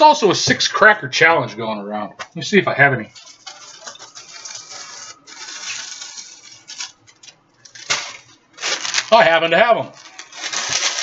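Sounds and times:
rustling of things handled: 3.1s - 11.0s.

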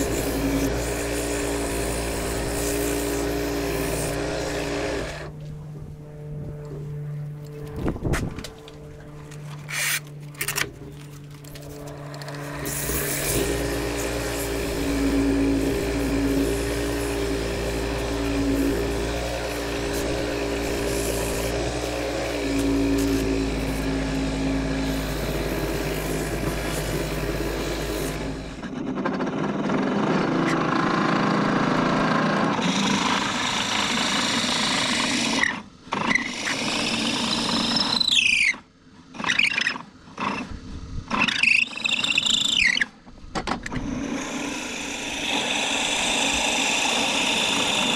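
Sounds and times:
sandpaper on spinning wood: 0.0s - 5.2s, 11.6s - 28.6s
drill bit whining: 0.0s - 5.4s, 8.5s - 29.4s, 31.9s - 43.0s, 43.6s - 47.9s
wood lathe humming: 0.0s - 7.7s, 11.0s - 28.9s, 30.6s - 38.1s, 43.8s - 47.9s.

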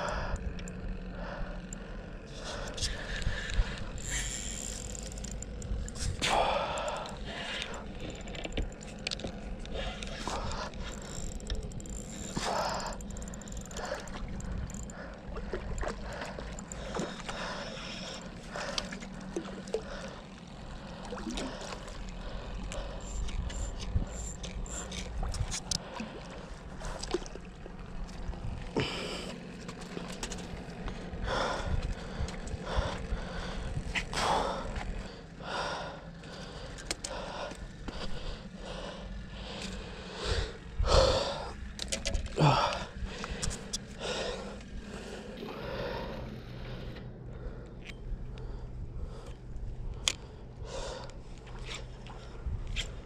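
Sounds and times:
fishing reel clicking: 0.0s - 20.8s, 21.6s - 25.8s, 36.1s - 40.1s, 41.3s - 45.2s, 49.2s - 51.9s
wind rumble on microphone: 22.1s - 26.2s, 27.8s - 29.0s, 30.7s - 35.1s, 48.1s - 53.0s.

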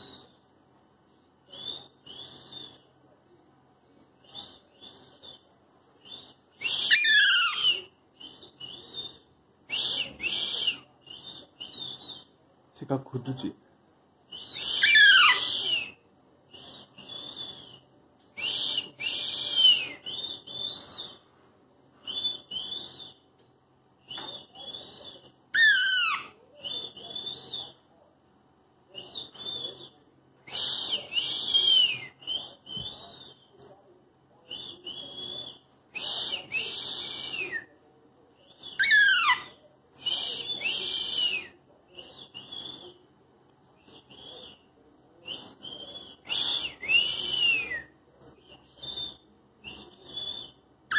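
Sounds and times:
parakeet squawking: 6.9s - 7.6s, 14.7s - 15.5s, 25.6s - 26.3s, 38.8s - 39.5s.

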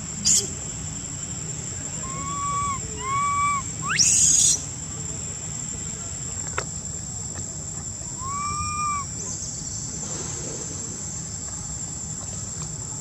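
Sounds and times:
high-pitched insect drone: 0.0s - 6.3s
baby monkey cooing and shrieking: 2.0s - 4.6s, 8.2s - 9.0s.

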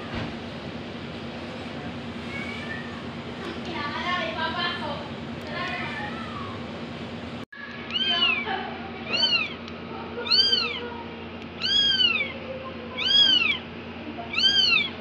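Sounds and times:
kitten mewing: 7.9s - 9.6s, 10.2s - 11.0s, 11.6s - 13.6s, 14.3s - 15.0s.

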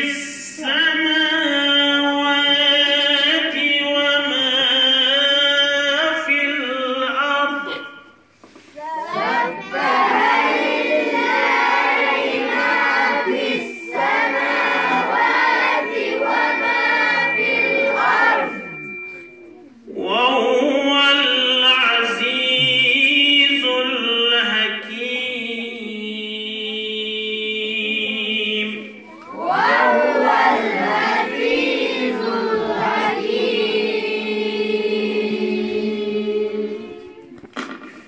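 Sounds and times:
children chanting in unison: 8.8s - 18.7s, 29.3s - 37.2s.

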